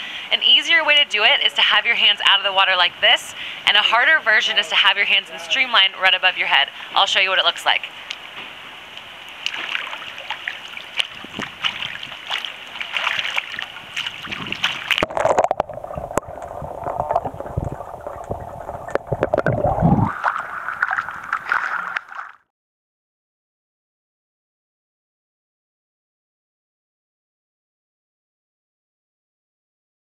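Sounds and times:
pool water splashing: 0.1 - 22.4
water dripping: 8.0 - 22.4.

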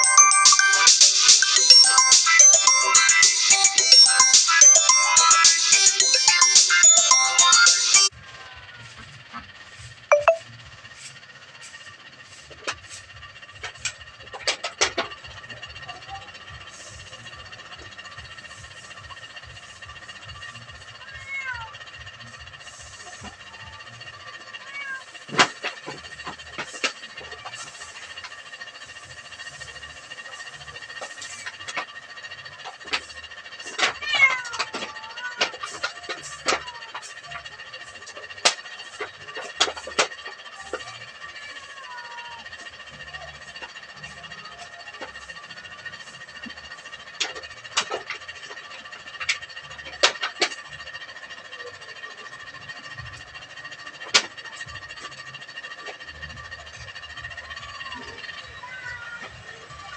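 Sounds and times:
cat meowing: 21.0 - 21.8, 24.6 - 25.1, 34.0 - 35.6.

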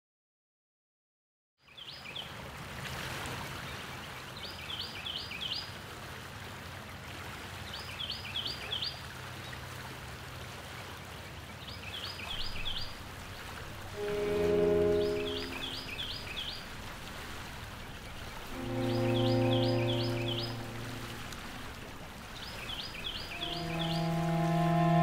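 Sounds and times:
songbird chirping: 11.7 - 25.0
steady background hiss: 12.2 - 25.0
held notes of music: 12.4 - 25.0.

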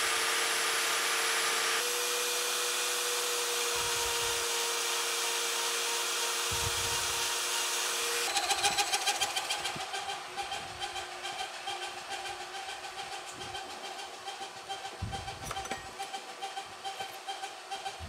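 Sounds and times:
die grinder whining: 0.0 - 18.0
grinding wheel rasping on metal: 6.2 - 18.0.

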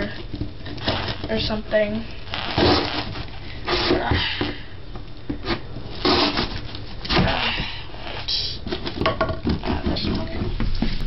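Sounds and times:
knife sawing through cardboard: 5.5 - 7.6.

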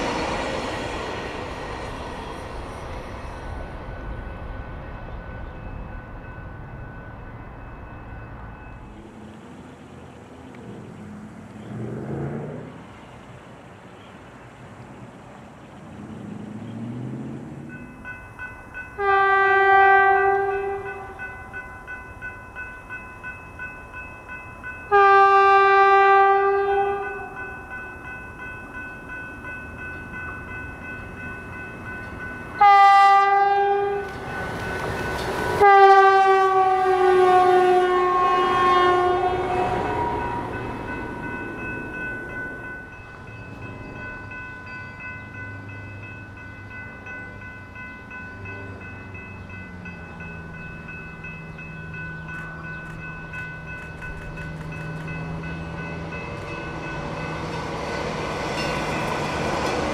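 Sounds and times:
train rushing past: 0.0 - 59.9
train horn blasts: 19.0 - 21.4, 24.9 - 27.5, 32.6 - 34.3, 35.6 - 41.2.

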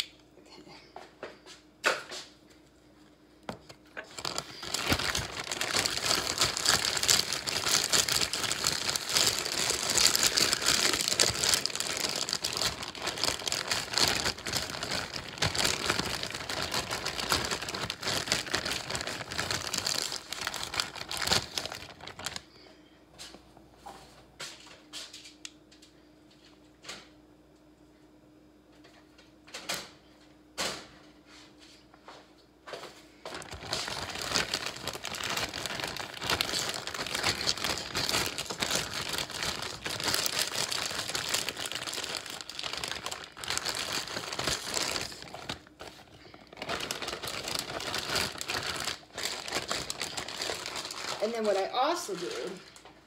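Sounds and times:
plastic bag crinkling: 3.5 - 22.7, 33.3 - 52.9.

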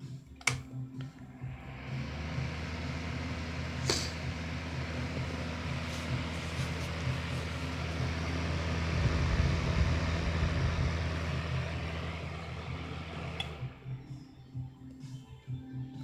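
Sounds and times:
fan heater whirring: 1.3 - 14.6.

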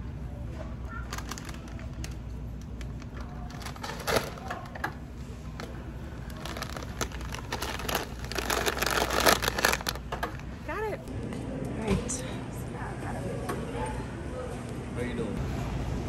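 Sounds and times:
low store hum: 0.0 - 16.0
chip bag crinkling: 0.9 - 4.7, 5.6 - 10.1.

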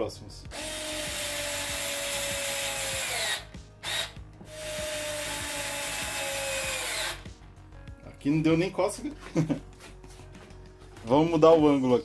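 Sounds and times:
cordless screwdriver whining: 0.6 - 7.2.

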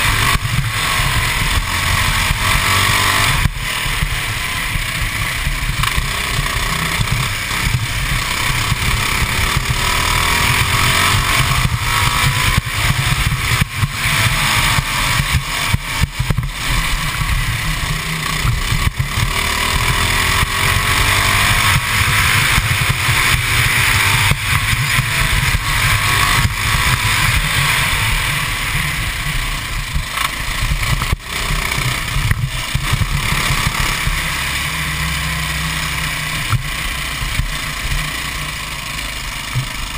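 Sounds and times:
kart engine revving: 0.0 - 39.9.

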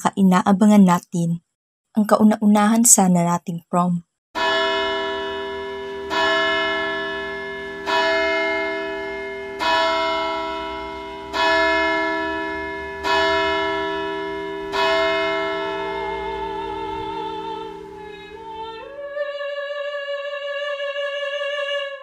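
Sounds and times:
bell tolling: 4.4 - 18.9.

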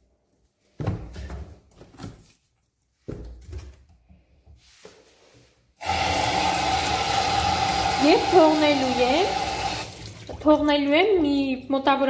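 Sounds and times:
tap water running into sink: 5.8 - 10.7.

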